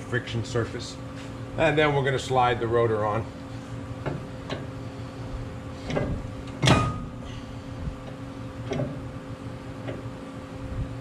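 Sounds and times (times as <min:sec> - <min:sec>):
sharp metallic clank: 0:06.6 - 0:07.2.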